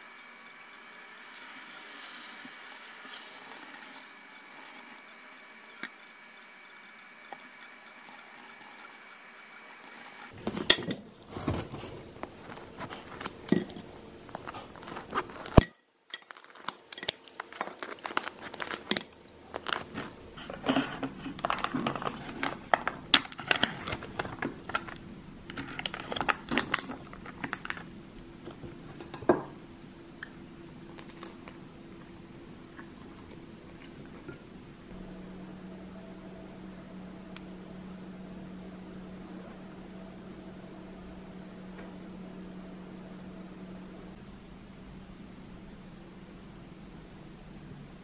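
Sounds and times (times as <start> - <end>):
dishes clinking: 10.4 - 11.7, 13.4 - 13.9
crust crunching under knife: 12.4 - 20.2.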